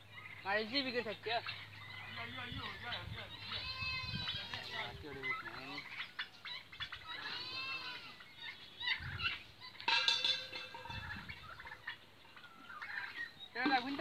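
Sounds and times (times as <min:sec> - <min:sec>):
birds calling: 0:00.0 - 0:14.0.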